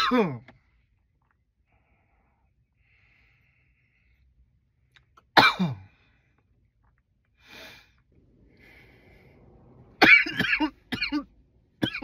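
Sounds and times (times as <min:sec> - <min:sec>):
man coughing harshly: 0:00.0 - 0:00.5, 0:05.4 - 0:05.9, 0:10.0 - 0:12.0
soft breath: 0:01.6 - 0:04.8, 0:07.3 - 0:09.9.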